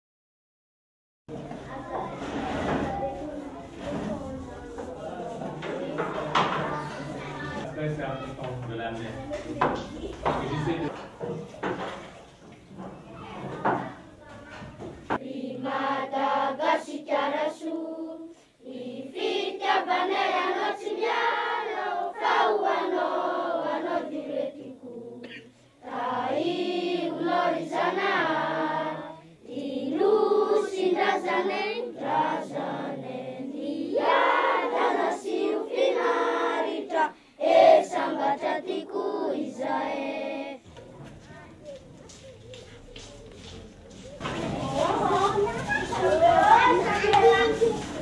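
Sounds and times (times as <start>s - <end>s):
children singing: 1.3s - 48.0s.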